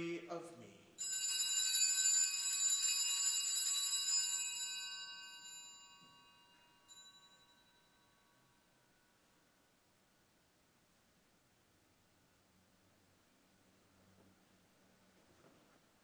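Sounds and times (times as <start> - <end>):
altar bells ringing: 1.0 - 9.1.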